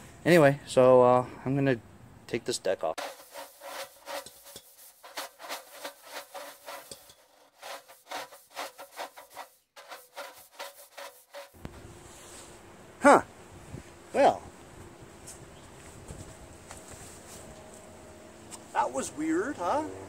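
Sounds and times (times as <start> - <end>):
sped-up clicks knocks and scraping: 3.0 - 11.7.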